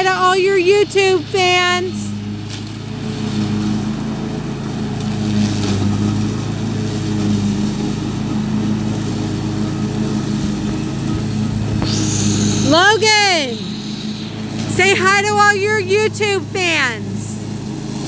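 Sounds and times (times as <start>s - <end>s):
riding mower engine running: 0.0s - 18.0s.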